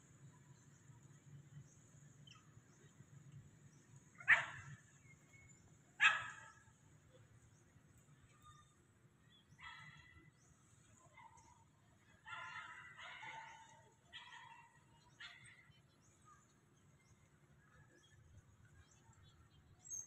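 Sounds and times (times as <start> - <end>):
animal barking calls: 4.2 - 5.1, 6.0 - 6.7.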